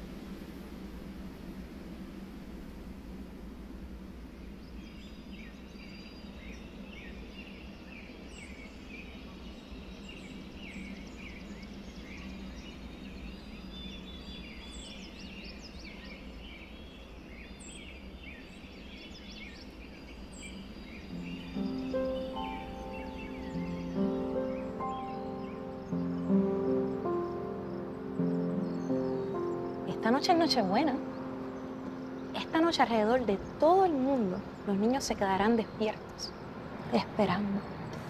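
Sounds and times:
high chirping calls: 0:20.5 - 0:38.0.

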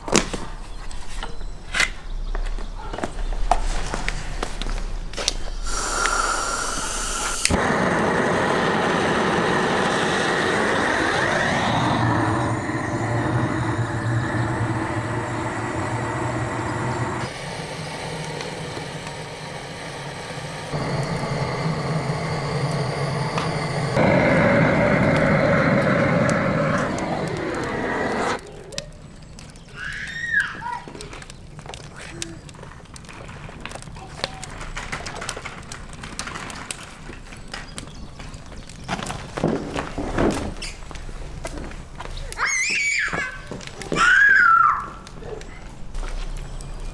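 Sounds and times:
gas torch roaring: 0:03.9 - 0:28.7.

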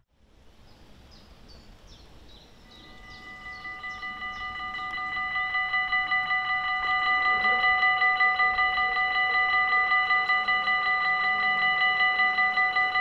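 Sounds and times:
crossing warning bell ringing: 0:02.6 - 0:13.0.

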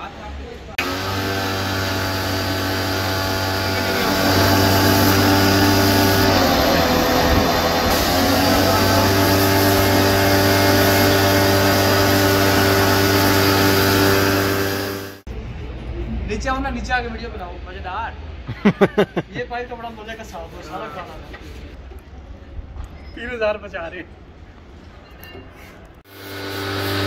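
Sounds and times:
drilling rig engine running: 0:00.8 - 0:15.3, 0:26.1 - 0:27.0.

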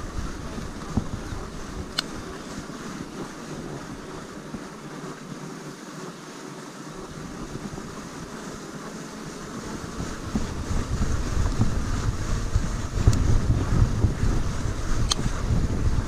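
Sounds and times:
wind on microphone: 0:00.0 - 0:05.1, 0:07.0 - 0:16.0.

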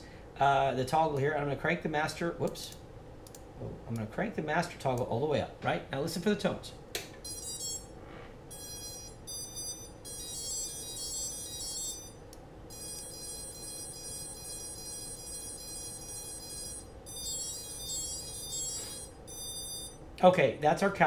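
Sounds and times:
electronic motor beeps: 0:07.2 - 0:07.9, 0:08.5 - 0:20.0
long held tone: 0:07.2 - 0:20.0.

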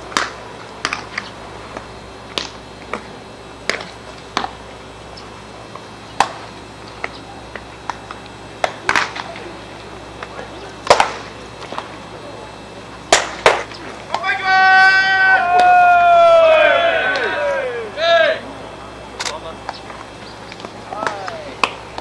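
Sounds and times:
baseballs smacking into gloves: 0:00.1 - 0:04.6, 0:06.2 - 0:09.5, 0:10.2 - 0:11.9, 0:13.1 - 0:14.3, 0:15.5 - 0:15.8, 0:19.2 - 0:22.0.

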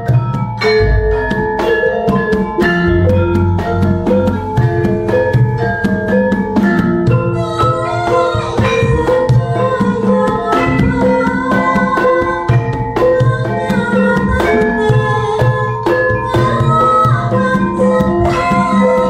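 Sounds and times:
metallophones ringing melody: 0:00.0 - 0:19.0
hand drum low strokes: 0:00.6 - 0:11.8.

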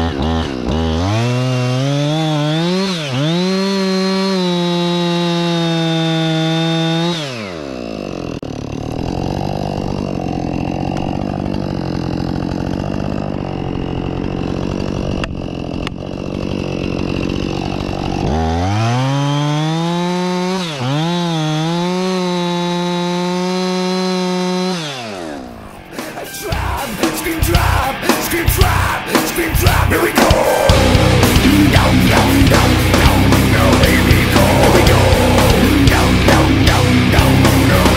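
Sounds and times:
chainsaw revving and idling: 0:00.0 - 0:37.9
loud heavy rock music: 0:25.8 - 0:37.9.

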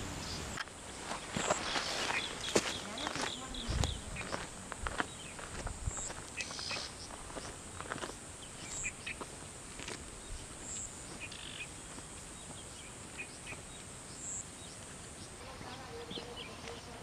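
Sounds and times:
birds chirping: 0:00.0 - 0:17.0
steady high hiss: 0:00.0 - 0:17.0
footsteps on dirt trail: 0:00.6 - 0:13.8.

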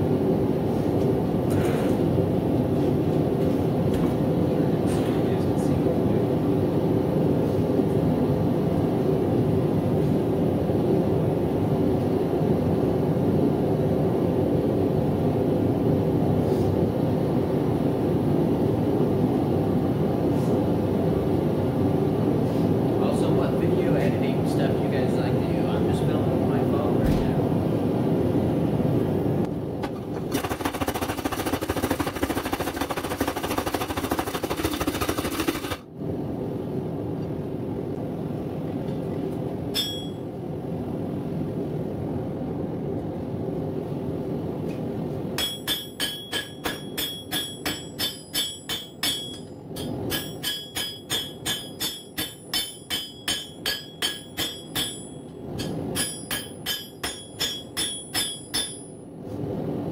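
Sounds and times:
hammer ringing on anvil: 0:39.7 - 0:40.2, 0:45.4 - 0:59.0.

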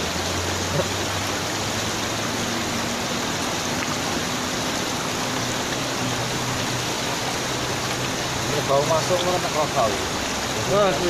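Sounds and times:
river current rushing: 0:00.0 - 0:11.0.

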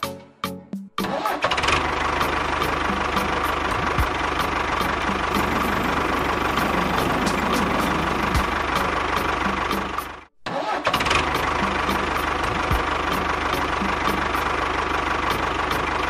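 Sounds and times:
tractor engine idling: 0:02.0 - 0:09.7.

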